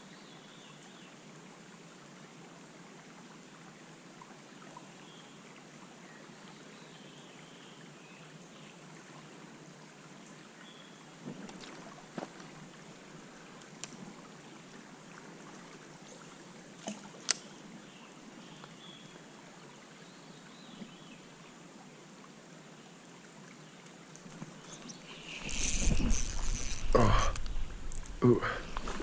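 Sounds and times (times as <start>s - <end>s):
stream water flowing: 0.0s - 29.0s.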